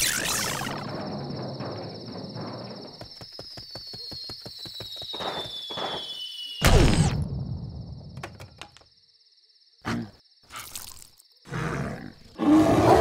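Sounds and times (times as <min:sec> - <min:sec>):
cartoon bear roar: 0:11.5 - 0:13.0.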